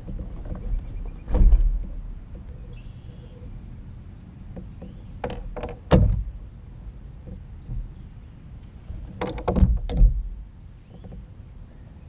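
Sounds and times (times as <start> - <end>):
thumps on kayak: 0.0 - 2.0, 4.6 - 6.3, 9.2 - 10.3
low steady rumble: 0.0 - 12.0.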